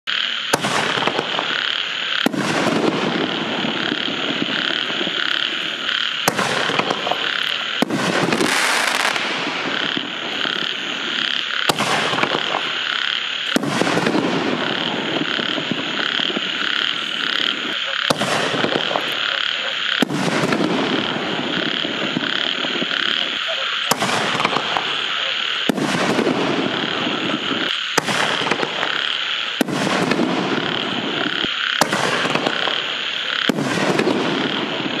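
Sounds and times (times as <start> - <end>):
firework hiss: 0.1 - 35.0
firework mortar launch report: 0.1 - 35.0
frogs croaking: 0.1 - 35.0
firework shell bursting: 0.5 - 19.2.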